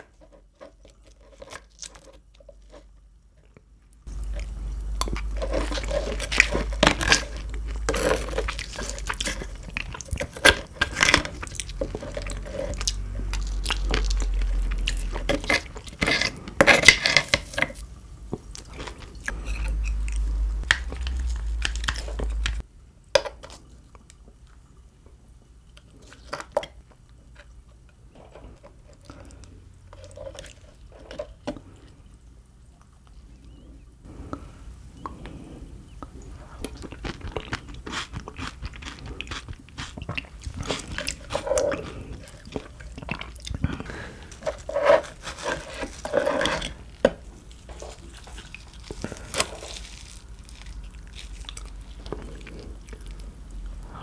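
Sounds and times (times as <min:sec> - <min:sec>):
wet chewing and crunching: 0:00.0 - 0:22.7, 0:25.6 - 0:33.7, 0:35.0 - 0:53.9
low hum: 0:17.9 - 0:22.9.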